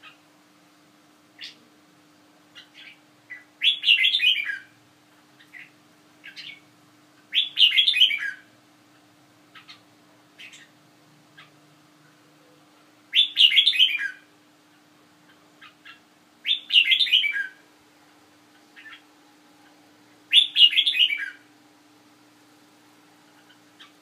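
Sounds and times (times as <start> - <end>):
faint bird chirps: 1.4 - 1.7, 2.5 - 4.8, 5.4 - 6.7, 7.3 - 17.7, 18.4 - 21.5, 23.2 - 24.0
bird singing descending phrases: 15.9 - 17.6, 20.3 - 21.4.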